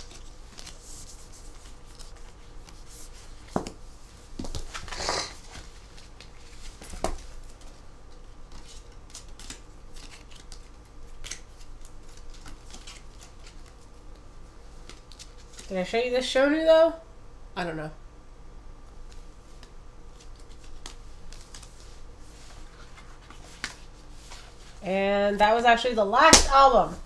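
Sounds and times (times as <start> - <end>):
papery rustle: 0.0 - 3.6, 8.5 - 13.9.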